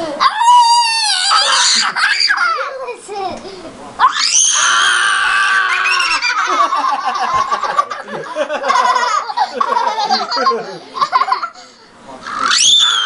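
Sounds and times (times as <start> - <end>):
child screaming: 0.2 - 2.8, 4.0 - 6.6, 12.3 - 13.0
children laughing and shrieking: 0.2 - 3.4, 4.0 - 13.0.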